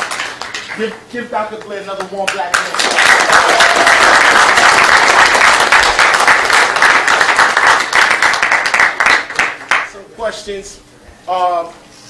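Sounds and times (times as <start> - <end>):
audience applauding: 0.0 - 1.0, 2.3 - 9.9.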